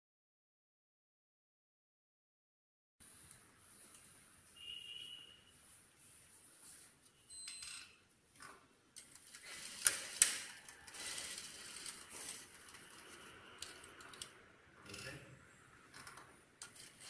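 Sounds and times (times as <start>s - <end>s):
sewing machine stitching: 9.1s - 14.2s, 15.9s - 17.0s.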